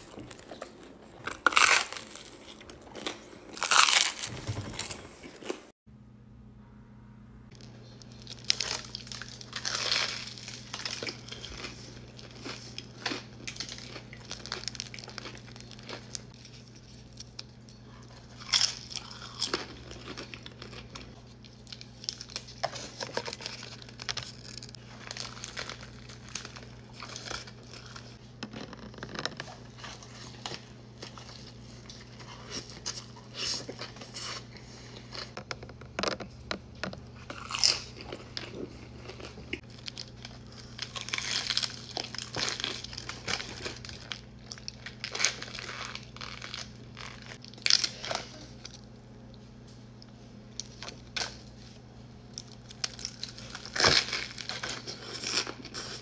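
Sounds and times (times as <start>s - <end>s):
low hum: 0.0s - 54.3s
crunchy food being chewed: 7.5s - 56.0s.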